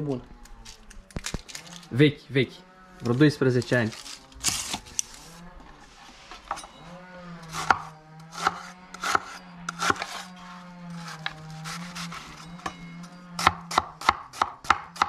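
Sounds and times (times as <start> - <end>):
low steady hum: 0.0 - 14.6
knife chopping on cutting board: 13.4 - 15.0.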